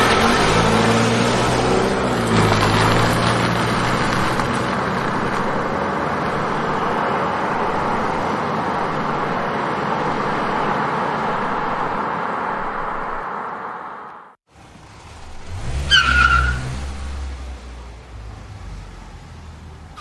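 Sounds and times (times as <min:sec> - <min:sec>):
car driving noise: 0:00.0 - 0:20.0.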